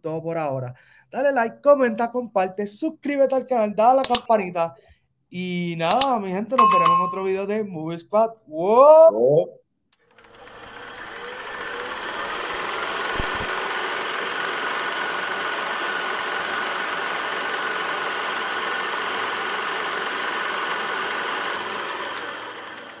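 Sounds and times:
film projector clatter: 0:10.1 - 0:23.0.

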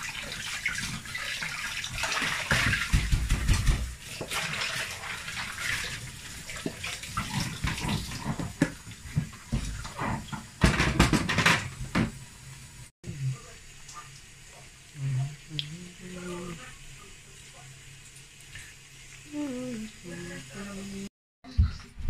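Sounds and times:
dishes clattering against sink: 0:02.1 - 0:04.4, 0:06.6 - 0:12.2.

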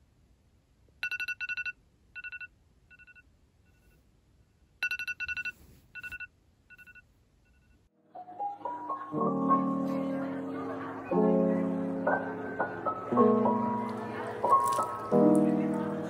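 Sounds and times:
phone alarm beeping: 0:01.0 - 0:03.9, 0:04.8 - 0:07.8.

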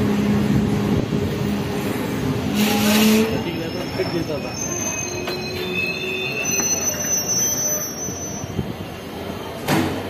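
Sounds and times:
rumble of rolling train coaches: 0:00.0 - 0:10.0
train wheels squealing on rails: 0:02.4 - 0:09.7.

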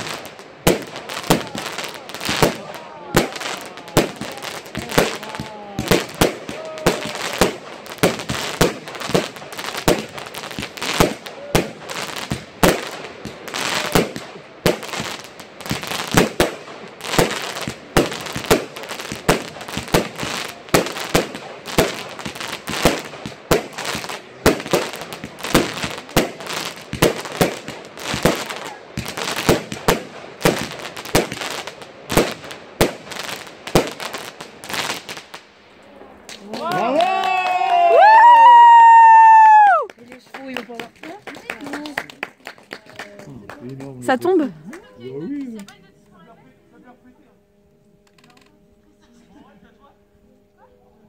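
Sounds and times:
aerial fireworks bursting: 0:00.0 - 0:36.4.

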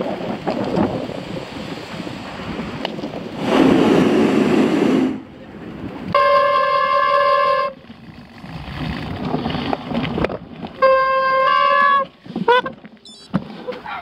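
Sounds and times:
wind on microphone: 0:00.0 - 0:10.8
bicycle brakes squealing: 0:10.8 - 0:14.0.

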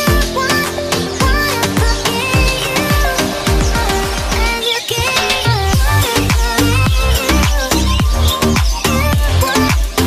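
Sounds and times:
electronic dance music: 0:00.0 - 0:10.0
held synth notes: 0:00.0 - 0:10.0
deep kick drums: 0:05.8 - 0:09.3.

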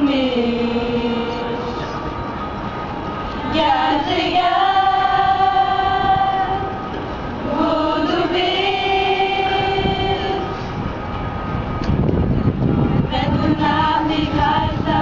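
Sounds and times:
person singing long notes: 0:00.0 - 0:02.0.

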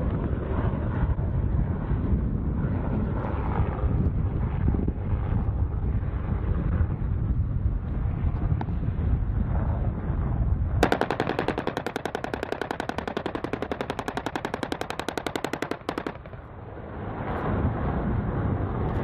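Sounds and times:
helicopter rotor rumble: 0:00.0 - 0:19.0
wind noise: 0:00.0 - 0:19.0
rotary cannon firing burst: 0:10.8 - 0:16.7.

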